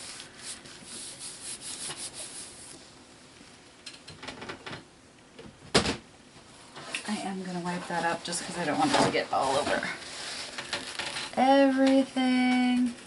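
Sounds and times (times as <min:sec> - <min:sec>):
hand rubbing paper page: 0:00.0 - 0:02.8.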